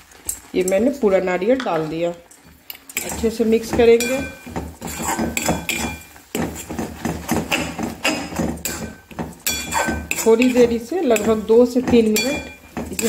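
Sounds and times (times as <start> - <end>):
wooden spatula knocking on metal pan: 3.0 - 13.0
metallic pan ringing: 4.0 - 4.5, 8.7 - 13.0.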